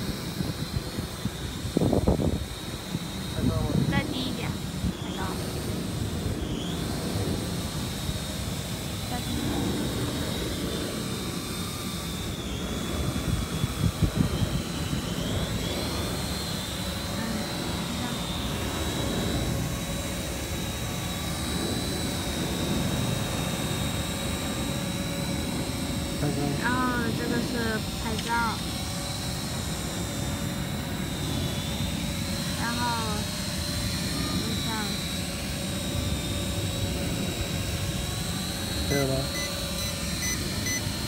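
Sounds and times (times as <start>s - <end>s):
drone propellers whining: 0.0s - 41.0s
repeating beep: 38.9s - 40.9s.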